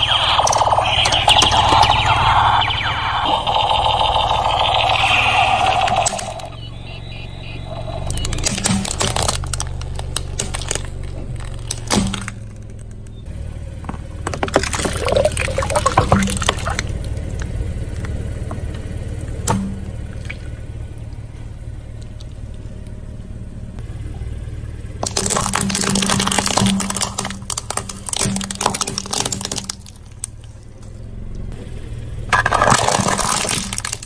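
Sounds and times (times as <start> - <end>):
sharp crack: 0.0 - 13.1, 14.2 - 21.4, 25.0 - 30.7, 32.3 - 34.0
car engine idling: 0.0 - 34.0
plastic toy cracking under tyre: 8.0 - 13.1, 14.2 - 18.2, 25.0 - 30.9, 32.4 - 34.0
liquid splashing and dripping: 14.4 - 17.1, 25.0 - 30.4.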